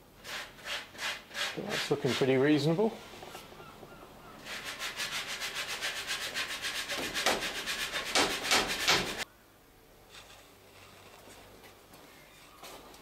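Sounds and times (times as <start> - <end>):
rasping against wood: 4.4 - 9.2.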